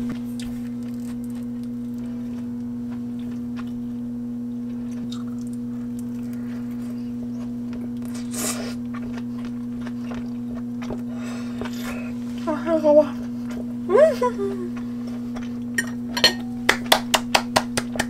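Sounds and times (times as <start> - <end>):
steady humming tone: 0.0 - 18.0
chewing or slurping: 4.7 - 12.4.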